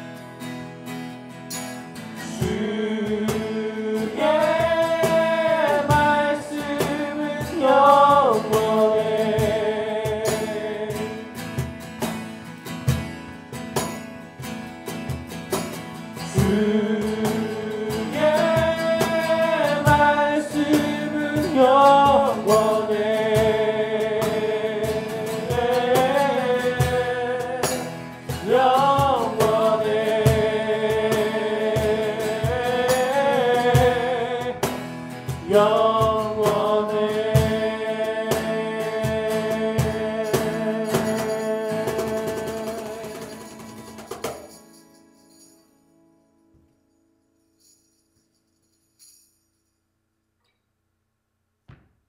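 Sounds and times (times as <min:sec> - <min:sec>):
strummed acoustic guitars: 0:00.0 - 0:47.3
cajon beat: 0:01.6 - 0:45.0
man singing: 0:02.1 - 0:11.5, 0:16.2 - 0:43.9.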